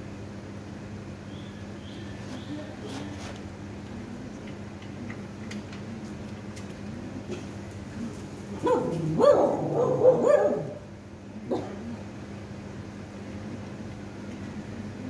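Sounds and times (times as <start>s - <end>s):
dog barking and whining: 8.6s - 10.9s.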